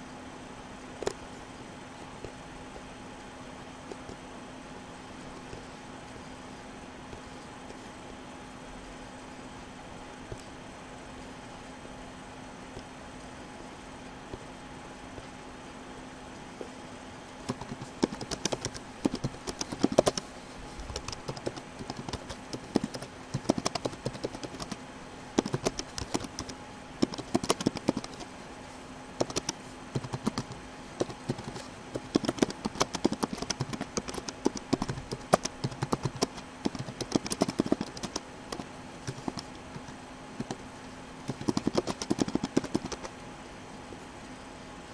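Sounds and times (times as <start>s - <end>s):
faint steady hum: 0.0s - 44.9s
keyboard key clicks: 25.4s - 28.2s, 29.2s - 40.6s, 41.3s - 43.1s.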